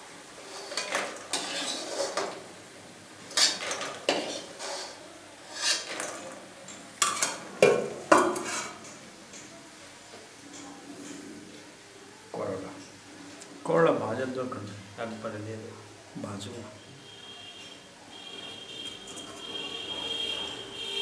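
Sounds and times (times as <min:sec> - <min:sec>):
steel skimmer scraping a wok: 0:00.4 - 0:02.4, 0:03.3 - 0:06.2.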